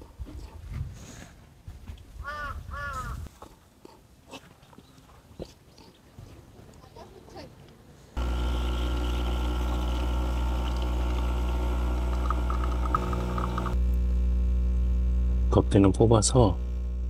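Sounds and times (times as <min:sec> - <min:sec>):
espresso machine hissing: 0:08.2 - 0:13.8
espresso machine humming: 0:08.2 - 0:13.8.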